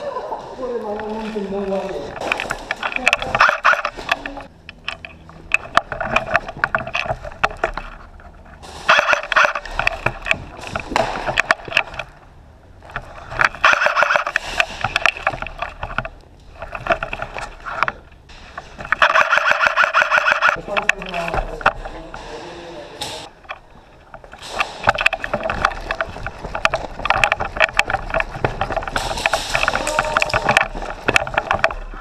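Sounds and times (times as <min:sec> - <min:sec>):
airsoft guns firing: 0:08.6 - 0:09.7, 0:13.6 - 0:14.8, 0:18.9 - 0:20.6.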